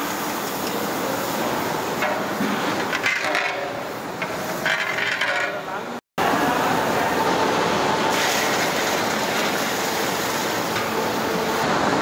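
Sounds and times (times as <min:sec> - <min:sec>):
water boiling in a pot: 0:00.0 - 0:05.5, 0:06.3 - 0:11.6
metal ladle scraping a pot: 0:02.0 - 0:05.6.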